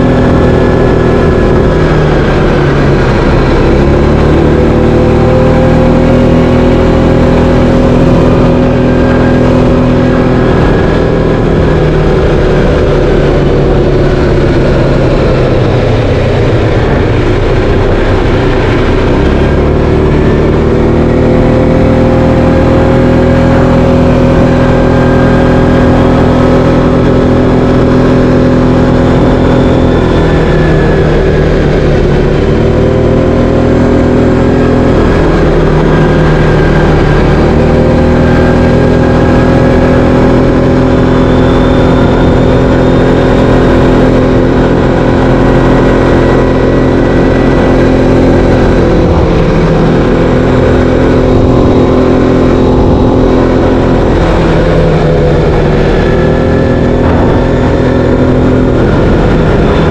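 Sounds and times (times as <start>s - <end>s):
atv engine running: 0.0s - 59.9s.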